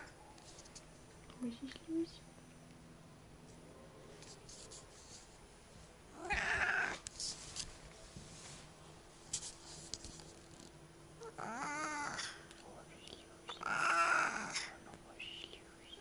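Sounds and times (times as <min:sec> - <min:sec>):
cat meowing: 0:06.2 - 0:07.0, 0:13.5 - 0:14.6.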